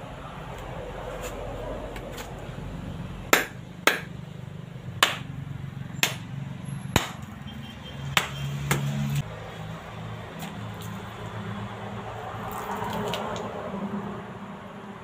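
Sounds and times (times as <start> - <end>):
machete knocking coconut shell: 3.3 - 4.2, 5.0 - 5.3, 6.0 - 6.3, 7.0 - 7.3.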